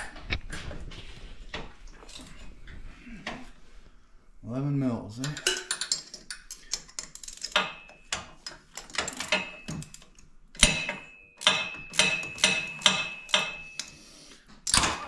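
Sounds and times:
hand ratchet clicking: 0:06.5 - 0:07.7
metallic ticks and ringing: 0:09.1 - 0:13.9.

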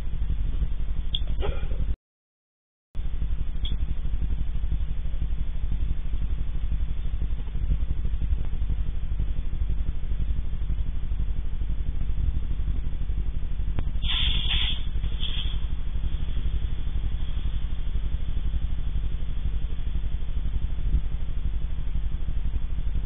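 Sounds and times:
low pulsing hum: 0:00.0 - 0:02.0, 0:03.0 - 0:23.0
burst of hiss: 0:14.0 - 0:15.7.

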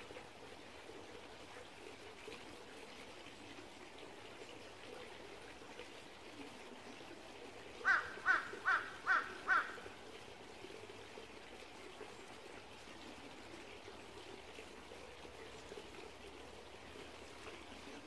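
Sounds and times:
stream trickling over rocks: 0:00.0 - 0:18.0
bird harsh calls: 0:07.8 - 0:09.8.

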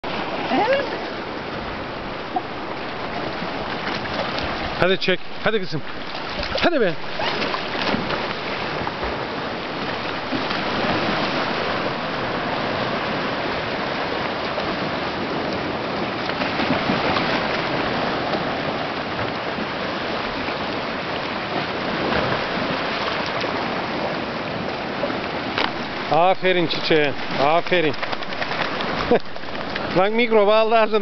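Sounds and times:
dog wading through water: 0:00.0 - 0:31.0
shallow water splashing over rock: 0:01.0 - 0:15.2, 0:25.2 - 0:31.0.

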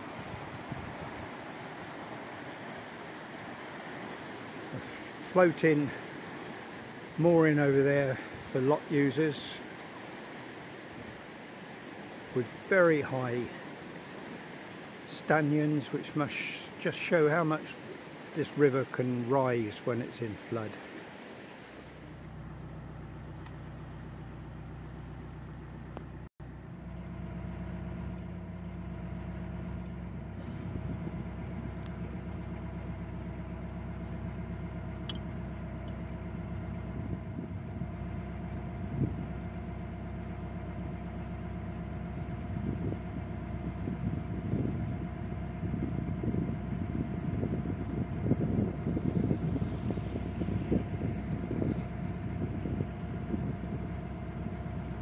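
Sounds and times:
wind buffeting microphone: 0:00.0 - 0:05.1, 0:29.6 - 0:32.4, 0:36.3 - 0:39.5, 0:41.7 - 0:55.0
boat diesel engine humming: 0:00.0 - 0:55.0.

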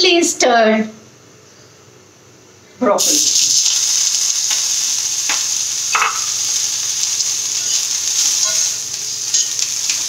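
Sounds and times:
vegetables sizzling in oil: 0:03.0 - 0:10.0.

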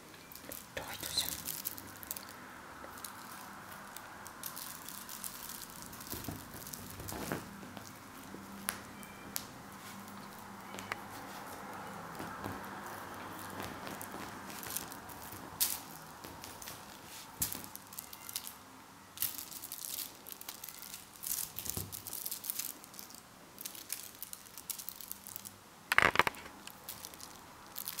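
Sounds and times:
kitten scrabbling on bedspread: 0:06.1 - 0:07.8, 0:12.2 - 0:15.6.

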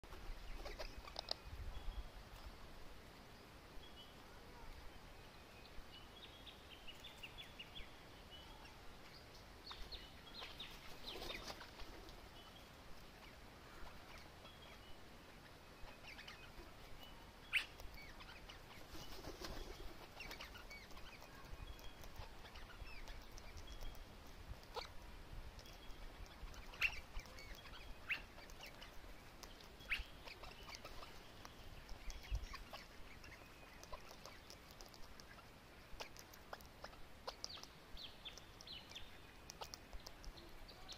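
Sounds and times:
sharp bird clicks: 0:00.5 - 0:01.5, 0:17.5 - 0:40.9
parrots chirping: 0:15.8 - 0:16.7, 0:17.5 - 0:18.9, 0:20.0 - 0:25.0, 0:25.6 - 0:40.3.

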